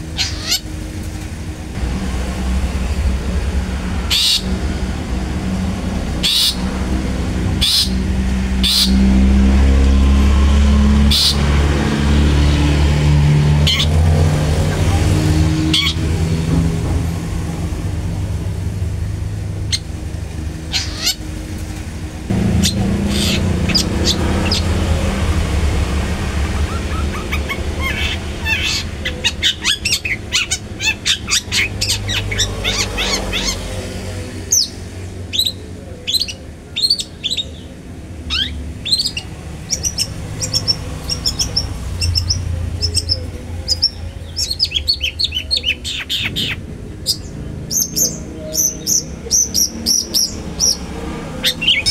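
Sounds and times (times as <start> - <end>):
bird calling: 0.0 - 0.8, 20.6 - 21.3, 22.5 - 25.1, 26.4 - 33.8
low rumble: 1.5 - 29.1.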